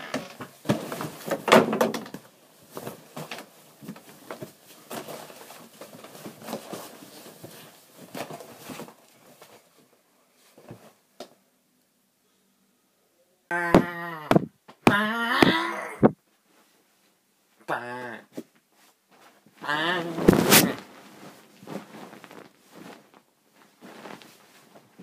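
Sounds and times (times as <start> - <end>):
objects knocking and clattering: 0.0 - 6.9.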